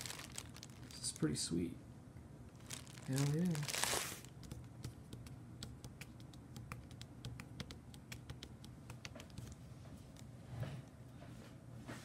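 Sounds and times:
plastic bag crinkling: 0.0 - 1.4, 2.6 - 4.4.

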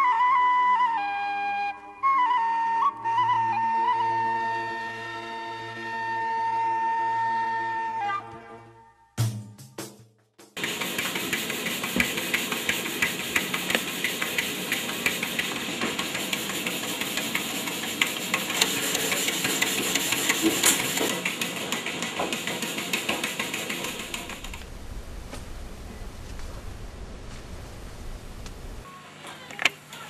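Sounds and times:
grain mill running: 10.6 - 28.9.

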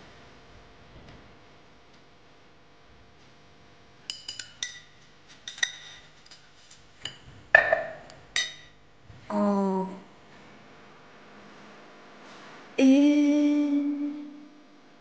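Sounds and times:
cup set down: 7.6 - 8.1.

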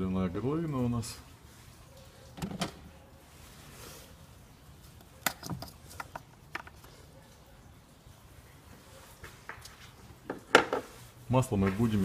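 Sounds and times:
oil cap clicks and knocks: 5.2 - 6.9.

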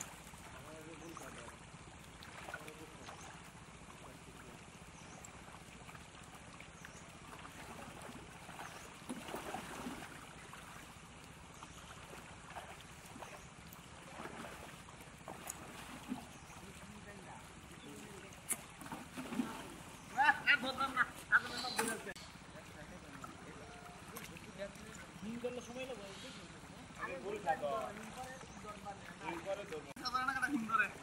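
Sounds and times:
water sloshing from net: 0.0 - 25.9, 26.5 - 31.0
louder water splashes: 7.2 - 11.1, 14.0 - 17.0, 18.7 - 22.2.

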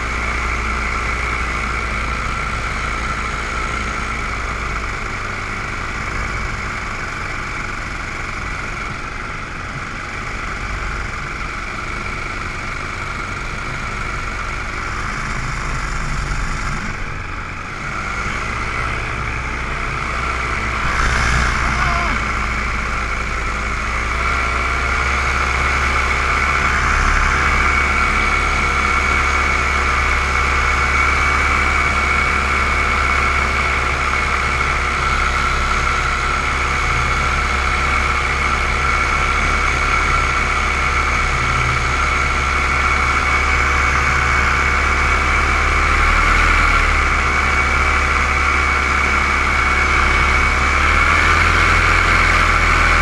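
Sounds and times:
paramotor engine droning: 0.0 - 53.0.

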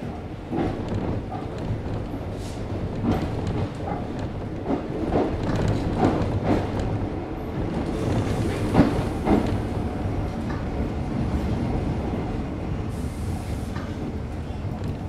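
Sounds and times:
train rumble: 0.0 - 15.0
wheels clacking over rail joints: 0.4 - 9.8.

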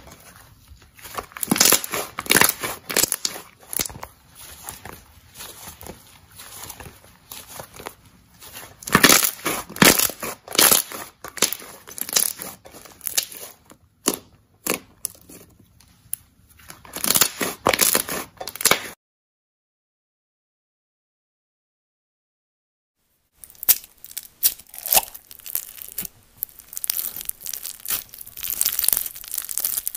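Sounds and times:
slime squishing and popping: 1.0 - 15.4, 23.4 - 29.9.

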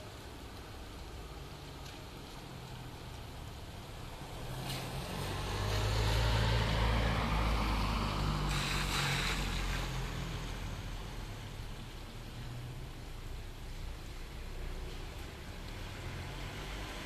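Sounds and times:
rain: 0.0 - 17.0
vehicle passing: 4.1 - 11.2, 15.7 - 17.0.

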